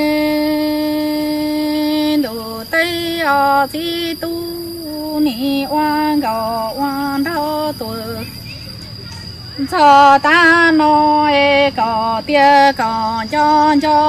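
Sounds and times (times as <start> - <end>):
woman singing unaccompanied: 0.0 - 8.7, 9.6 - 14.0.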